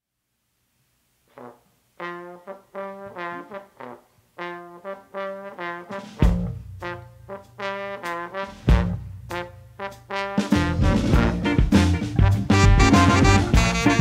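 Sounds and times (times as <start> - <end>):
horn section playing short notes: 1.4 - 14.0
full band playing: 5.9 - 14.0
loud drum hit with bass: 6.2 - 7.1, 8.5 - 14.0.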